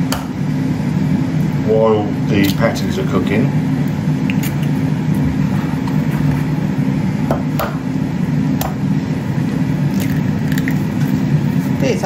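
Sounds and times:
air fryer humming: 0:00.0 - 0:12.0
eggs cracking: 0:03.8 - 0:04.8, 0:09.9 - 0:11.2.

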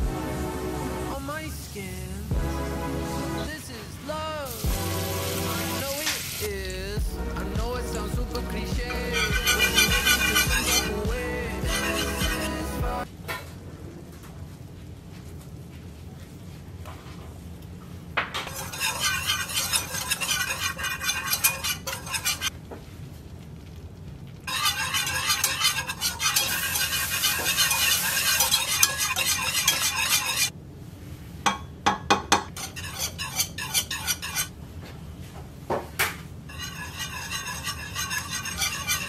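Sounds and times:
whisk beating against pot: 0:07.9 - 0:13.0, 0:18.5 - 0:22.5, 0:24.5 - 0:30.5, 0:36.5 - 0:39.0.

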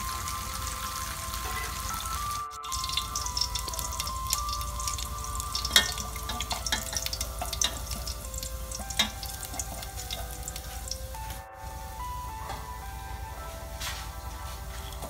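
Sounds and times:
food sizzling in oil: 0:00.0 - 0:11.4
light background music: 0:00.0 - 0:15.0
chopsticks clicking on pot: 0:02.7 - 0:10.8.

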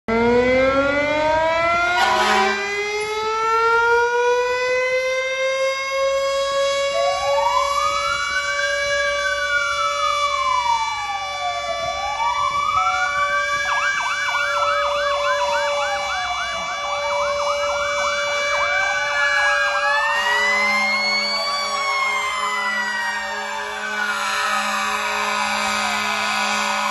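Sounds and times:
fire truck siren wailing: 0:00.1 - 0:26.9
siren sweeping and yelping: 0:00.1 - 0:26.9
low steady horn tone: 0:01.8 - 0:02.8, 0:20.2 - 0:26.9
brief horn blast: 0:01.9 - 0:02.7.

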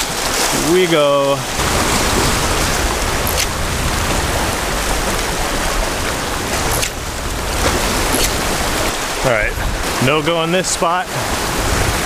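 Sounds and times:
ocean surf: 0:00.0 - 0:12.0
wind on microphone: 0:00.0 - 0:12.0.

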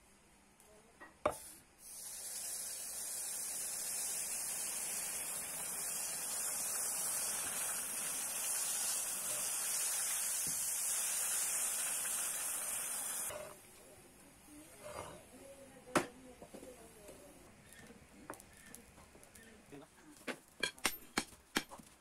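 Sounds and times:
hot metal sizzling in water: 0:01.4 - 0:13.6.

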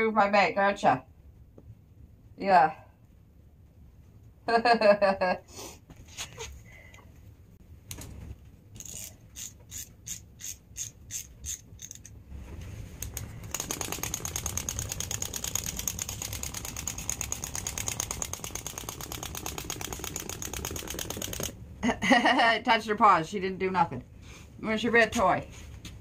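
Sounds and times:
wind-up toy running clicking: 0:08.8 - 0:12.1, 0:13.0 - 0:21.6
wind-up toy spring ratchet clicks: 0:08.8 - 0:12.2, 0:13.0 - 0:21.5.

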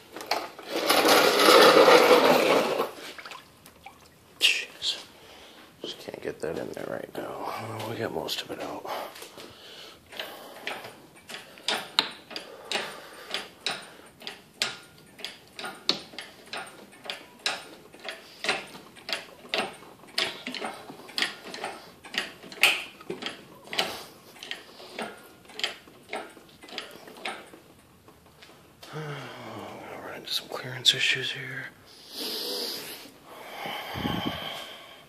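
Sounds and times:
hoist pump handle clicking: 0:10.1 - 0:27.6.

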